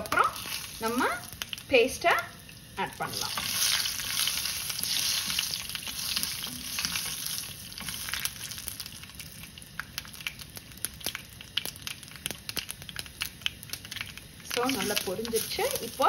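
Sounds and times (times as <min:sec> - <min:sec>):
spices sizzling in hot oil: 0:00.0 - 0:16.0
mustard seeds popping: 0:07.8 - 0:16.0
wooden spatula stirring: 0:14.0 - 0:16.0.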